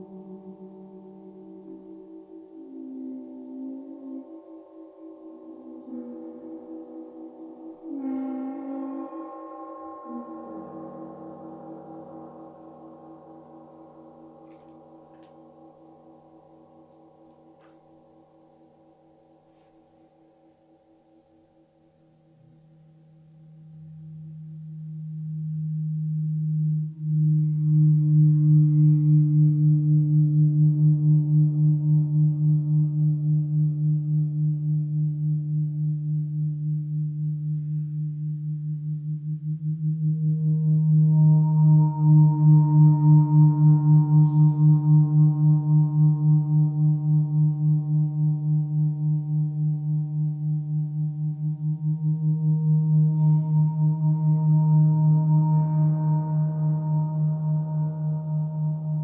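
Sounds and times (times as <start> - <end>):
gong humming drone: 0.0 - 19.3, 23.4 - 59.0
gong rubbed with friction mallet: 39.4 - 48.6.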